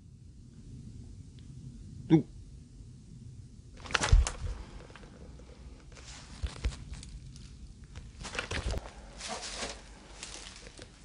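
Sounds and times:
dry stalks rustling: 0:03.8 - 0:11.0
footsteps through dry grass: 0:05.9 - 0:11.0.

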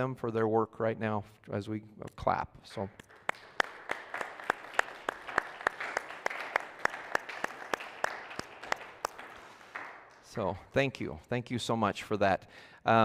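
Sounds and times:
person clapping close by: 0:03.0 - 0:10.2
crowd applauding: 0:03.0 - 0:10.4.

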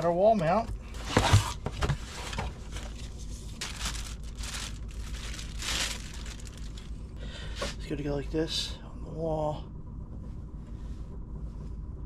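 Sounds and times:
crinkly material rustling: 0:01.2 - 0:07.0.

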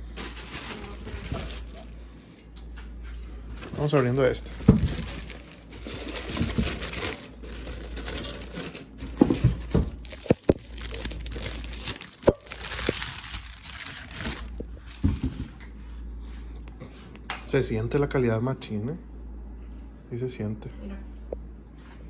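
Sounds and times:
plastic bag crinkling: 0:00.0 - 0:02.0, 0:03.2 - 0:15.5.

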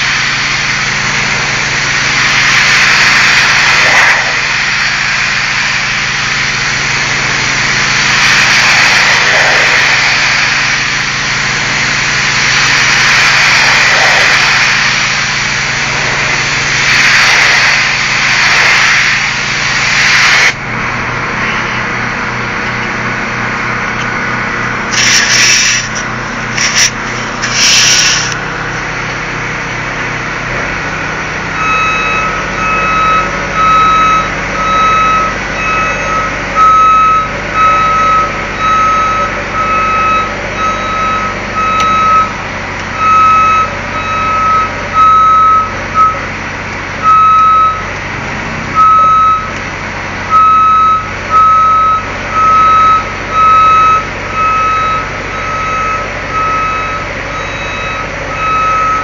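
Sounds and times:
pressure washer spray on brick: 0:00.0 - 0:20.6, 0:24.8 - 0:28.4
low motor hum: 0:00.0 - 0:59.0
reversing alarm beeping: 0:31.4 - 0:46.4, 0:47.0 - 0:47.9, 0:48.7 - 0:49.6, 0:50.3 - 0:59.0.

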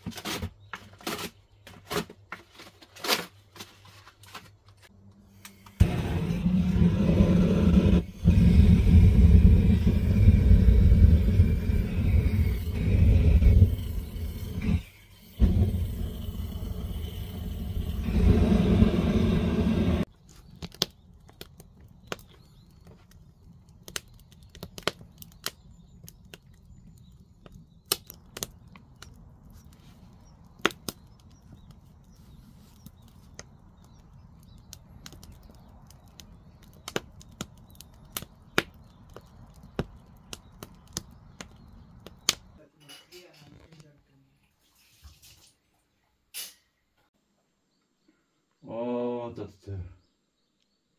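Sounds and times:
wood fire crackling: 0:01.9 - 0:44.0
burning logs popping: 0:05.5 - 0:44.0
loud low rumble: 0:05.8 - 0:14.8, 0:15.4 - 0:20.1.

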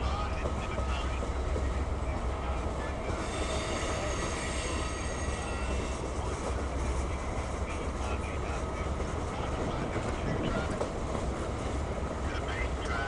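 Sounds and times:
train wheels rumbling on rail: 0:00.0 - 0:13.0
high wheel squeal: 0:03.2 - 0:06.1.

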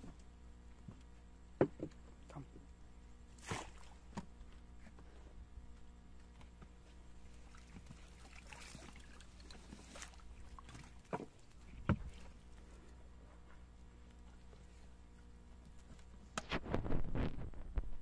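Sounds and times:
faint water splashing: 0:03.3 - 0:04.2, 0:07.2 - 0:12.8.

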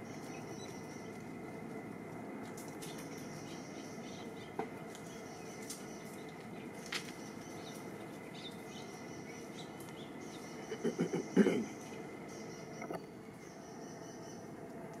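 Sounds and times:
thin high hum: 0:00.0 - 0:15.0.

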